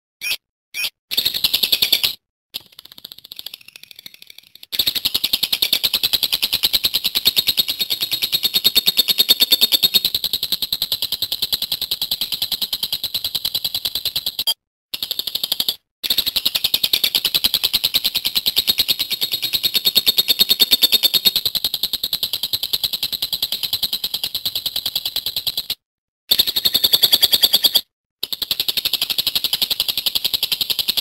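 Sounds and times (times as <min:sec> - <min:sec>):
lovebird chattering trill: 0:07.9 - 0:10.2, 0:19.1 - 0:21.5.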